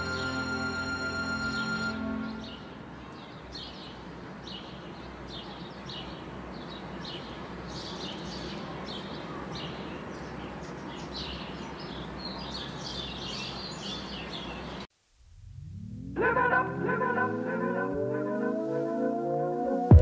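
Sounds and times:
steady background noise: 0.0s - 20.0s
small birds chirping: 2.3s - 14.9s.

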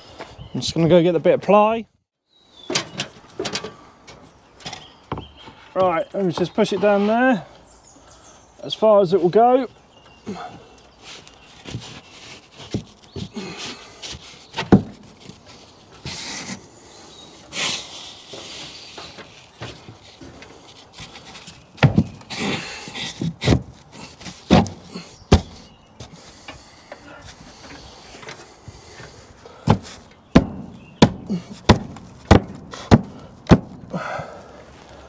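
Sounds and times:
board sliding and scraping: 11.0s - 16.7s
sharp knocks on wood: 29.7s - 33.8s.

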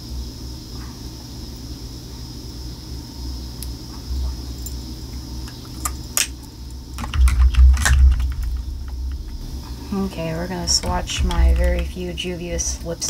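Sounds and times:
faint high whine: 0.0s - 13.0s
low handling rumble: 6.5s - 13.0s.

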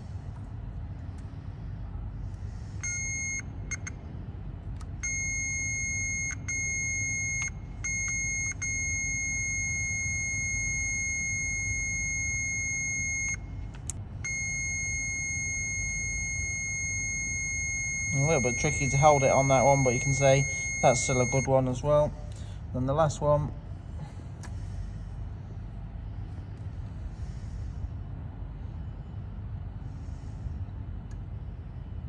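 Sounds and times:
multimeter continuity beep: 2.8s - 4.0s, 5.0s - 13.6s, 14.2s - 21.6s.

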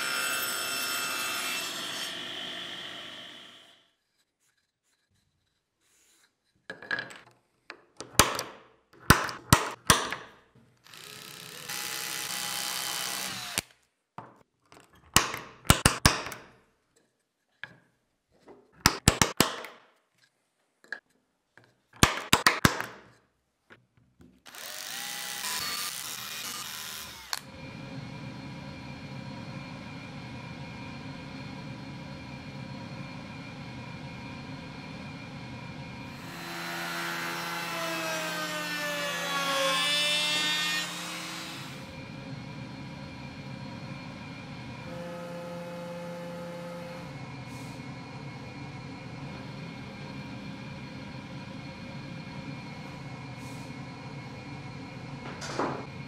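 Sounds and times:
power drill boring wood: 0.0s - 3.7s, 10.9s - 13.7s, 24.5s - 27.6s, 36.0s - 42.0s, 44.8s - 47.2s.

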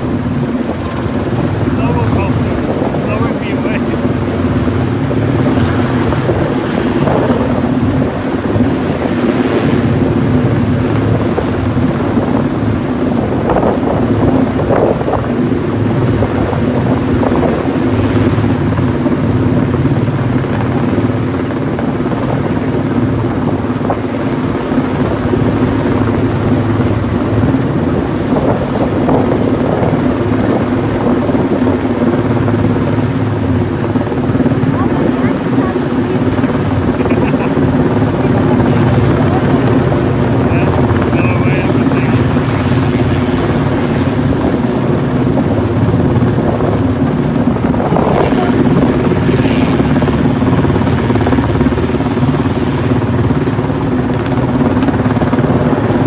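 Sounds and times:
helicopter rotor drone: 0.0s - 56.0s.

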